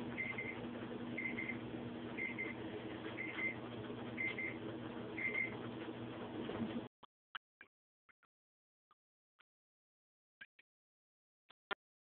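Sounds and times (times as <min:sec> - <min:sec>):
steady low hum: 0:00.0 - 0:06.9.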